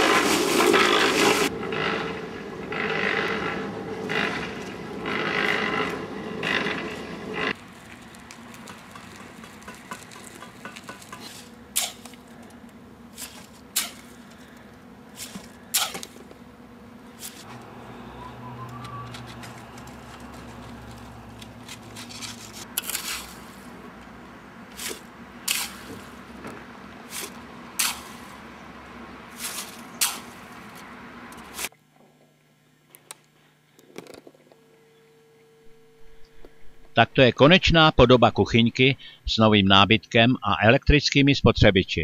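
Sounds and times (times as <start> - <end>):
tool scraping wet mortar: 0.0 - 2.1, 2.7 - 12.5, 13.1 - 16.3, 17.1 - 17.6, 19.1 - 23.9, 24.7 - 26.4, 27.1 - 28.5, 29.3 - 31.7
steady low hum: 1.4 - 40.8.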